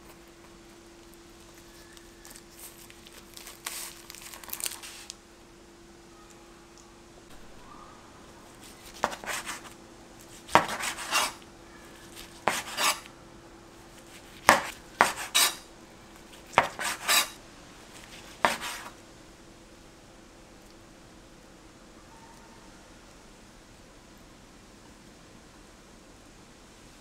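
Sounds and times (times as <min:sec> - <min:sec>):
knife rasping through roll: 0:08.8 - 0:09.7, 0:10.4 - 0:11.4, 0:12.1 - 0:13.1, 0:14.1 - 0:15.6, 0:16.5 - 0:17.4, 0:18.2 - 0:19.0.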